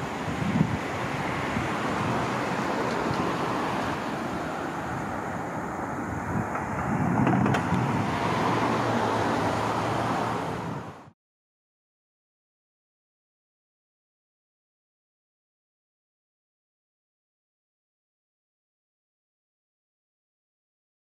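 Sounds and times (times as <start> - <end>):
low engine hum: 0.0 - 11.1
street traffic: 0.0 - 11.2.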